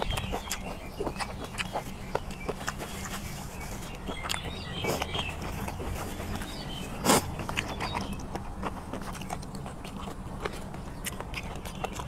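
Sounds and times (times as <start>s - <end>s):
wet mouth clicks: 0.0s - 3.2s.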